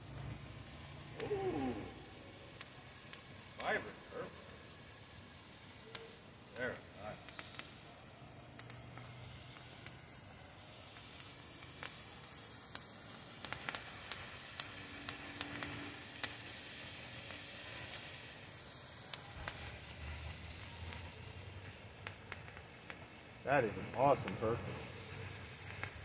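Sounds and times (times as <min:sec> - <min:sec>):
crackling sparks: 0:00.0 - 0:26.0
firework fountain hissing: 0:00.0 - 0:26.0.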